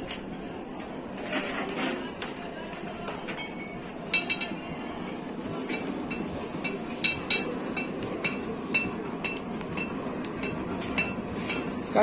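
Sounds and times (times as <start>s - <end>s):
hammer striking iron on anvil: 3.4s - 4.6s, 5.7s - 11.8s.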